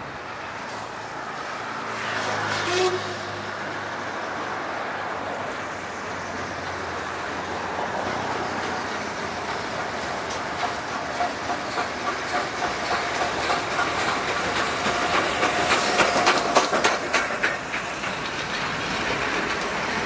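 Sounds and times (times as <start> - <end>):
carriages rolling past: 0.0 - 20.0
wheels clicking over rail joints: 5.4 - 20.0
steam locomotive exhaust beats: 6.1 - 20.0.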